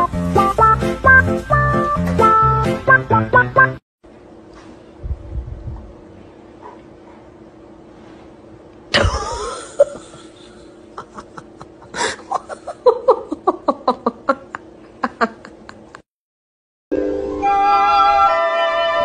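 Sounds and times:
light music: 0:00.0 - 0:03.8
person laughing: 0:08.9 - 0:16.0.

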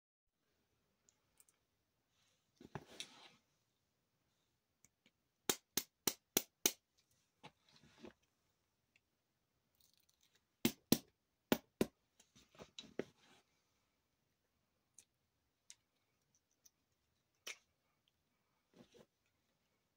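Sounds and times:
soft handling noises: 0:01.0 - 0:05.2, 0:06.9 - 0:09.2, 0:12.1 - 0:14.1, 0:15.1 - 0:19.9.

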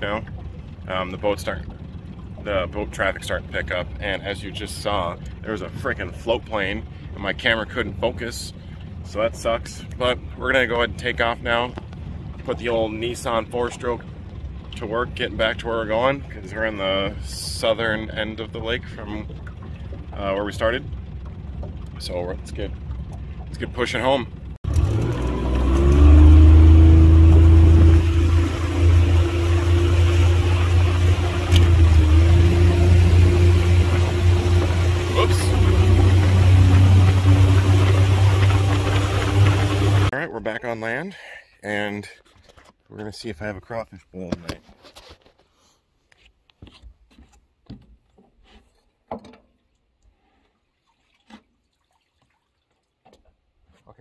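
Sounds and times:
outboard motor running: 0:00.0 - 0:40.1
footsteps on wooden boards: 0:46.2 - 0:49.4.

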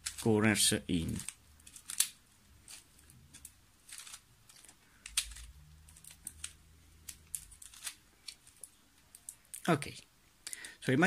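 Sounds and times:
plastic puzzle gears clicking: 0:00.0 - 0:00.3, 0:01.0 - 0:09.4.

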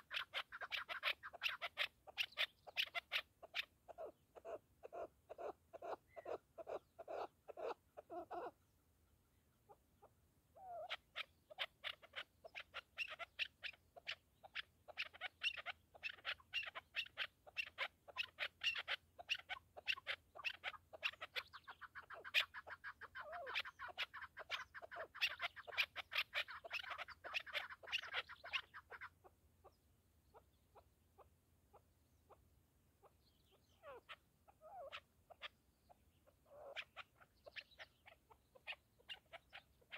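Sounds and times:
partridge clucking calls: 0:00.0 - 0:08.6, 0:09.7 - 0:31.3, 0:33.0 - 0:39.9.

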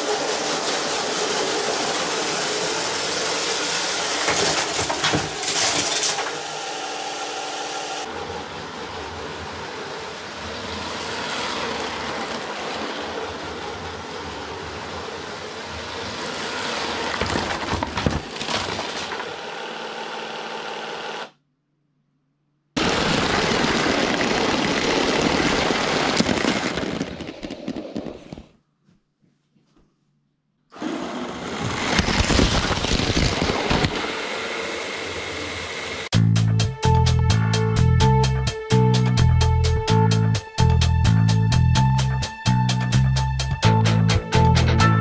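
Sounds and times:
toy train motors whirring: 0:08.8 - 0:17.2.

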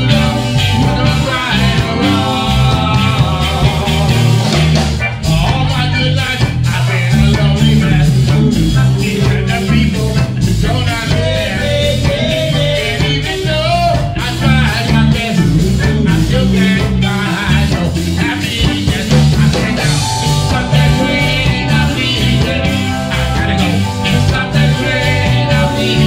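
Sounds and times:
live reggae band: 0:00.0 - 0:26.0
man singing: 0:00.0 - 0:26.0.

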